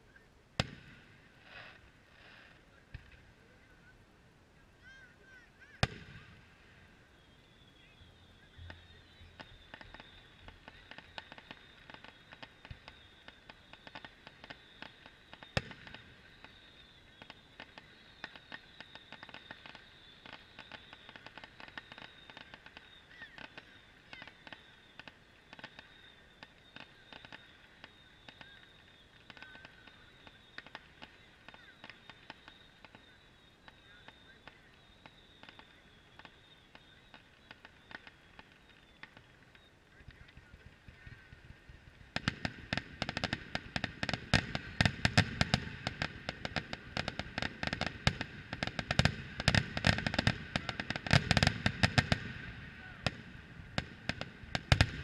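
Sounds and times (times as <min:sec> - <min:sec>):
firework crackling pops: 0:00.6 - 0:03.3, 0:05.8 - 0:06.9, 0:08.6 - 0:55.0
firework shells booming: 0:29.3 - 0:55.0.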